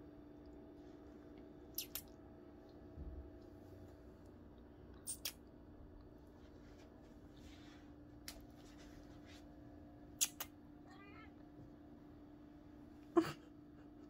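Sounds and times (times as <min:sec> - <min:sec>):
steady low hum: 0:00.0 - 0:14.0
sharp clicks of claws: 0:01.8 - 0:02.2, 0:05.0 - 0:05.4, 0:10.2 - 0:10.5.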